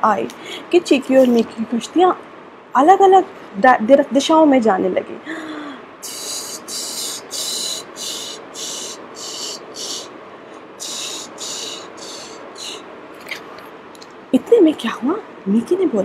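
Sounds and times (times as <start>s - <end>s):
mouth hissing whooshes: 6.0s - 10.1s, 10.8s - 13.6s.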